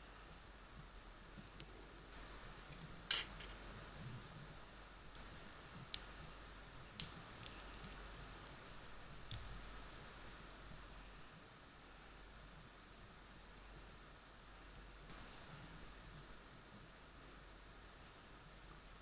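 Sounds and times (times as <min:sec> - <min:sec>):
plastic toy parts clicking: 0:03.1 - 0:03.6.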